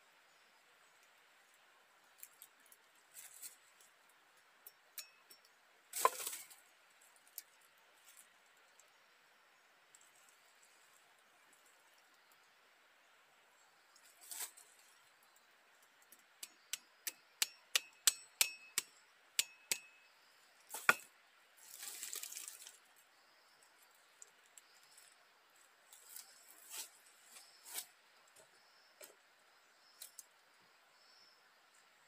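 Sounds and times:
light metallic clinks: 4.6s - 5.6s.

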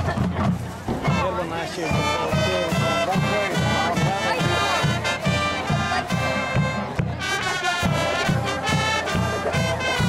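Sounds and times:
bass drum beat: 0.0s - 10.0s
saxophones and brass chords: 2.0s - 10.0s.

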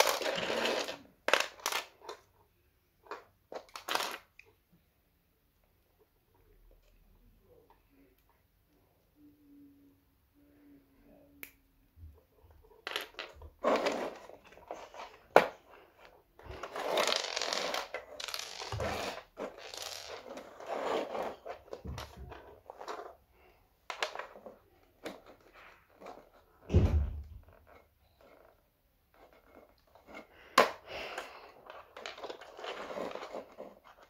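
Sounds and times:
plastic pieces clicking and rattling: 0.0s - 2.2s, 12.8s - 15.0s, 16.6s - 20.3s.

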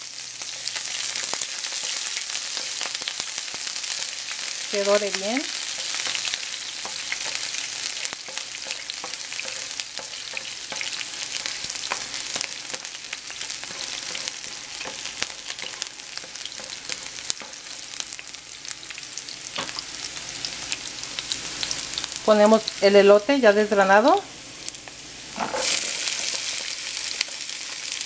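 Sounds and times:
onion sizzling in frying pan: 0.0s - 28.0s
spatula scraping pan: 13.4s - 17.8s, 25.3s - 27.4s.

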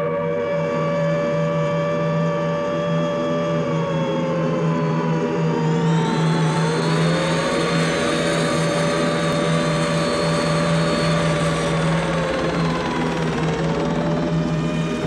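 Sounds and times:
aircraft engine and rotor drone: 0.0s - 15.0s.

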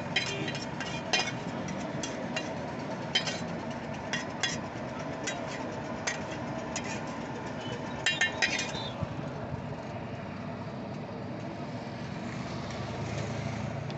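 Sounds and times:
serving utensils clinking: 0.0s - 4.6s, 8.0s - 8.9s
street traffic hum: 0.0s - 13.9s.

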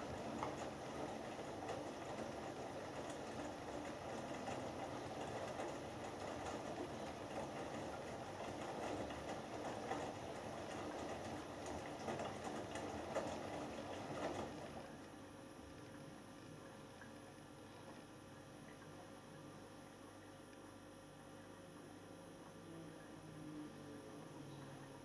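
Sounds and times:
wet laundry tumbling in drum: 0.0s - 15.0s.

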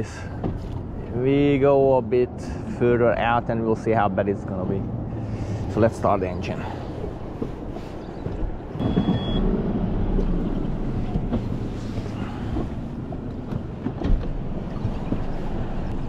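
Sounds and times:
short high beep: 8.8s - 9.4s.

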